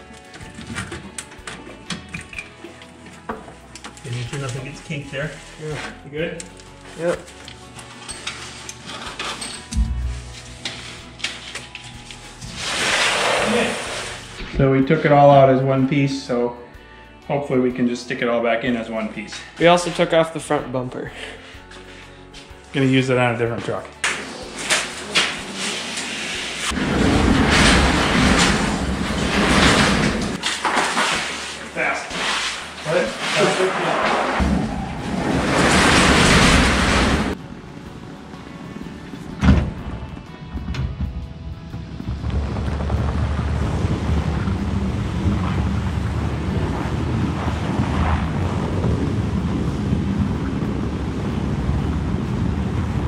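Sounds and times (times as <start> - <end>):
garage door rolling open: 7.8 - 14.5, 24.0 - 37.9, 38.5 - 53.0
truck engine running: 34.4 - 53.0
wind rumbling on microphone: 40.6 - 53.0.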